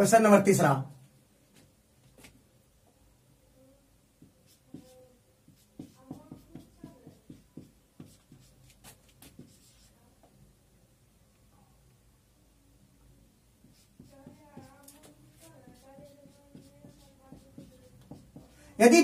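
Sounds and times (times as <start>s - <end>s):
marker pen writing on whiteboard: 4.2s - 10.0s, 13.6s - 18.6s.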